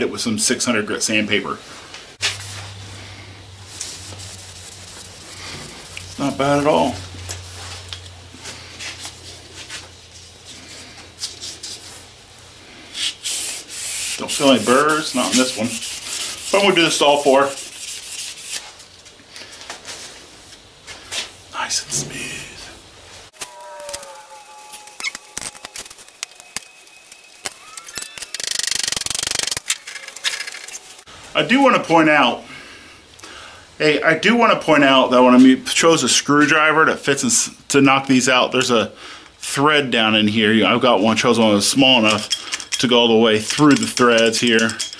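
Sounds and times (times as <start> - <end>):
cloth rubbing on steel: 2.2 - 7.9, 12.9 - 18.8
metal tools clicking and knocking: 42.1 - 44.9.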